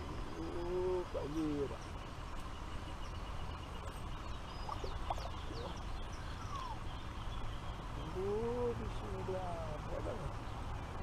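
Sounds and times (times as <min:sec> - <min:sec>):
outdoor background noise: 0:00.0 - 0:11.0
thin bird chirps: 0:00.4 - 0:08.8.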